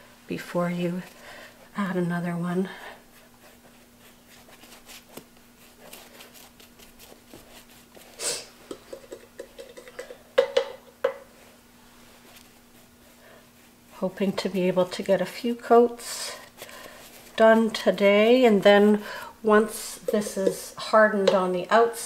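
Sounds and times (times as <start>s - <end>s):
paintbrush brushing on fabric: 2.9s - 8.2s, 11.4s - 19.0s.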